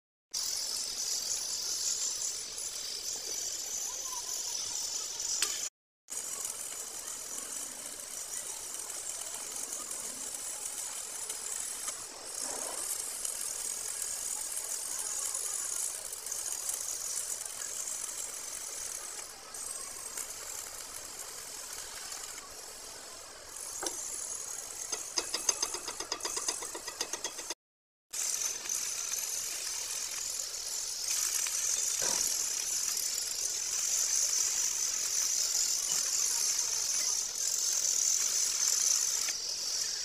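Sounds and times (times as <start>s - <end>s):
welding arc crackling hiss: 0.4s - 40.0s
metal tapping slag off weld: 5.4s - 5.7s, 24.9s - 27.6s.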